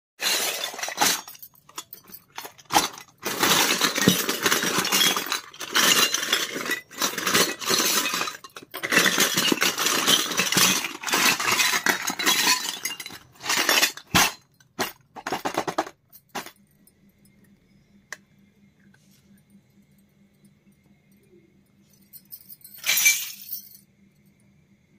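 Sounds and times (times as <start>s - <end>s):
toy pots and pans clinking: 0.2s - 16.6s.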